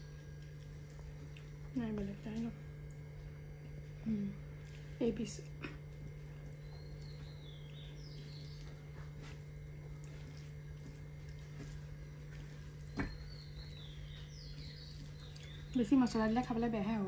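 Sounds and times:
low room hum: 0.0s - 17.0s
faint bird chirping: 6.2s - 10.4s, 12.3s - 17.0s.

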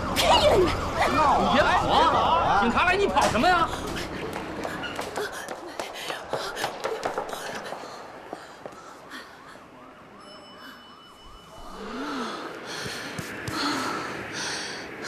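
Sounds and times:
police siren yelping: 0.0s - 2.7s.

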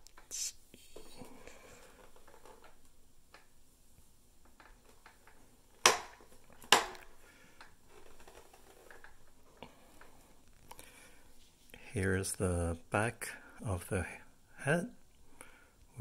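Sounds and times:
faint handling rustle: 3.6s - 12.2s.

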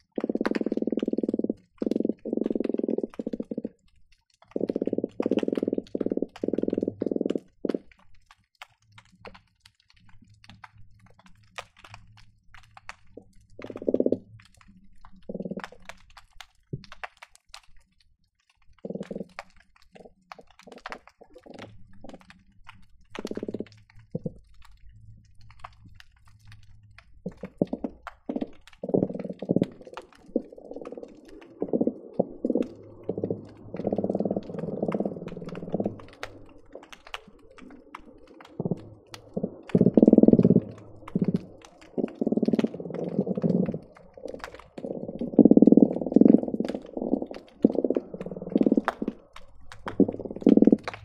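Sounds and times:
fish croaking underwater: 0.0s - 8.2s, 13.0s - 16.3s, 18.7s - 51.0s
sharp clicks: 27.3s - 51.0s.

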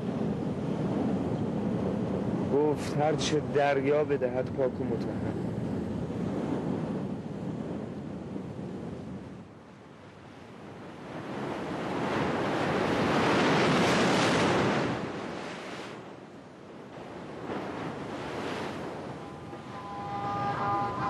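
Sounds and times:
waves breaking on rocky shore: 10.9s - 21.0s.

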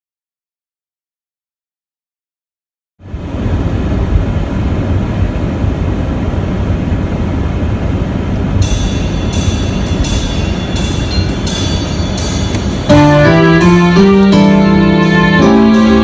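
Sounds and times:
car cabin road rumble: 3.1s - 12.9s
music: 8.6s - 16.0s.

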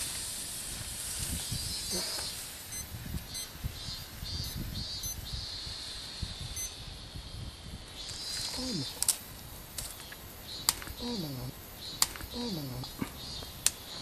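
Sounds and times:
smoke cartridge hissing: 0.0s - 3.8s, 7.9s - 12.4s.

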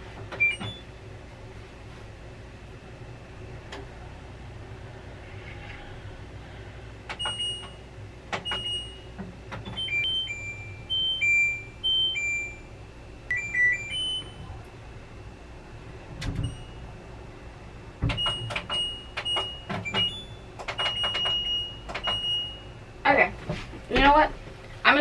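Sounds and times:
run of electronic tones: 13.3s - 14.4s
short electronic beeps: 13.3s - 14.4s.

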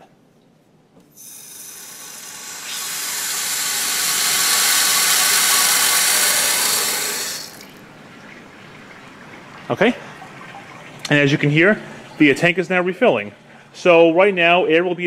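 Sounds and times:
water rushing into a tank: 1.2s - 12.0s.

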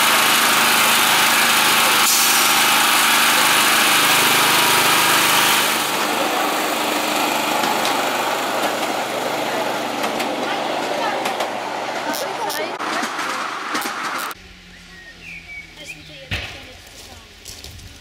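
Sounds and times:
miniature train rumbling on track: 0.0s - 14.4s
small petrol engine running: 0.0s - 14.4s.

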